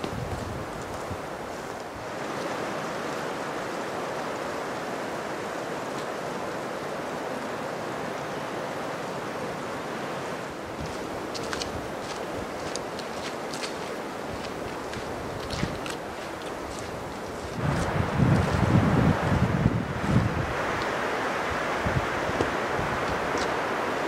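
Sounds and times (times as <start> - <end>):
steady rushing noise: 0.0 - 24.0
footsteps on leaves: 10.8 - 19.0.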